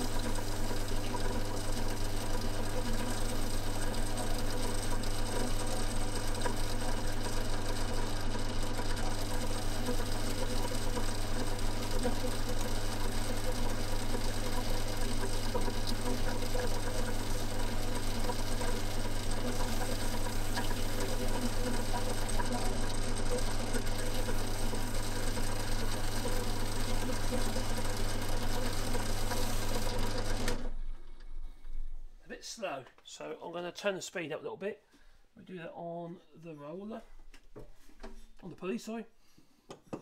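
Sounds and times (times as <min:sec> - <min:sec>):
lathe motor hum: 0:00.0 - 0:30.8.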